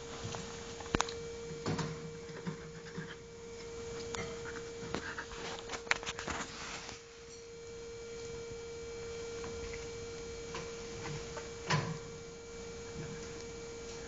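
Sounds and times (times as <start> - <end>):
steady hum: 0.0 - 14.0
short rustle: 5.0 - 7.2.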